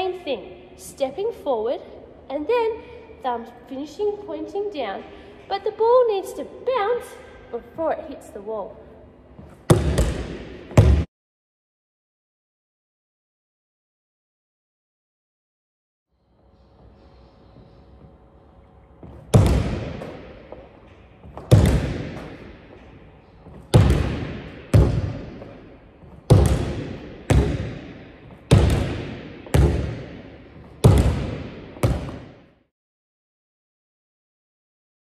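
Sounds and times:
basketball hitting floor and wall: 9.4s - 11.1s, 19.0s - 32.5s.

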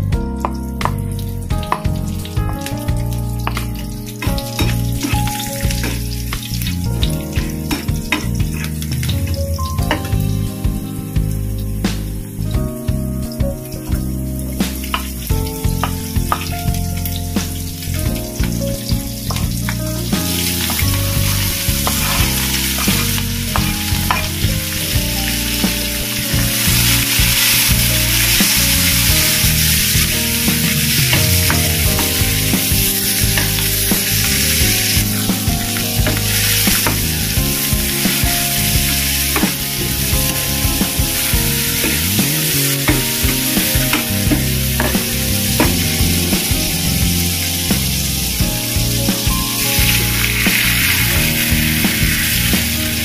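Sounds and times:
vegetables sizzling in hot oil: 20.3s - 35.2s, 36.0s - 48.4s, 49.6s - 53.0s.

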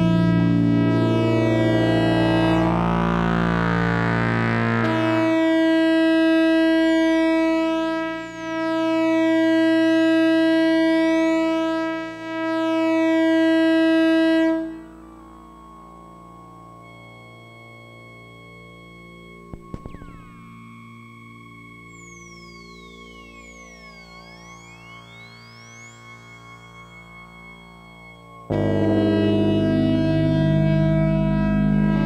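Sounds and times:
low electronic drone: 0.0s - 32.0s
sustained synthesizer tones: 0.0s - 32.0s
synth pitch glides: 0.0s - 32.0s.

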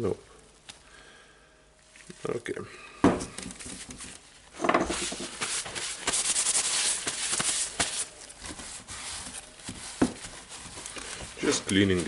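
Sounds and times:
paper towel scrubbing and rustling: 4.9s - 12.0s.

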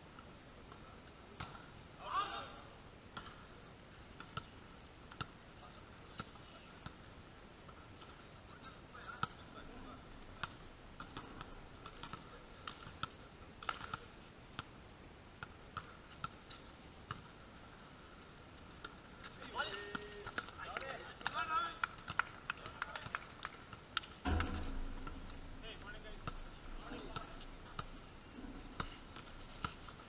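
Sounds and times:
volleyball bouncing on concrete: 4.2s - 4.5s, 10.4s - 14.7s, 24.0s - 28.0s.

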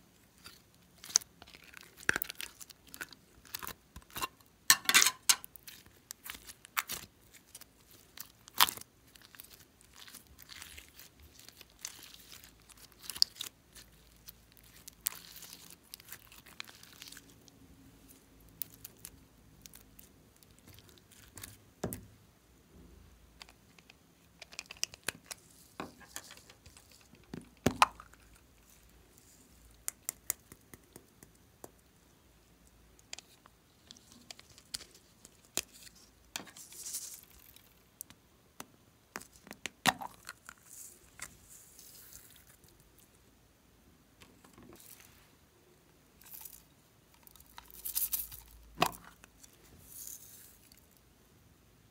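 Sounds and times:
beads rustling: 46.2s - 48.7s.

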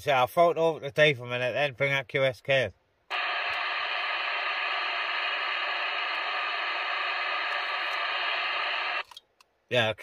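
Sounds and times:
radio static hiss: 3.1s - 9.1s.

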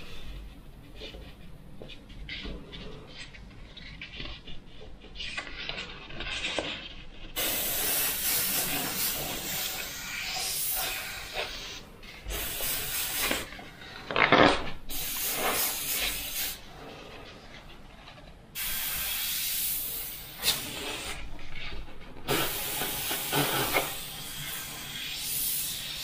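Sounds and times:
airbrush spraying paint: 7.3s - 13.5s, 14.9s - 16.7s, 18.6s - 21.3s, 22.3s - 26.0s.

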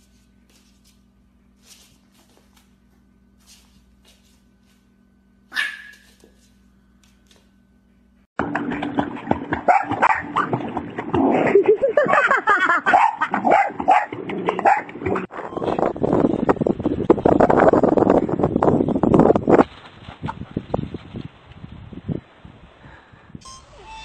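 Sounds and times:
puppy yipping: 5.5s - 6.3s
water splashing: 8.4s - 12.2s.

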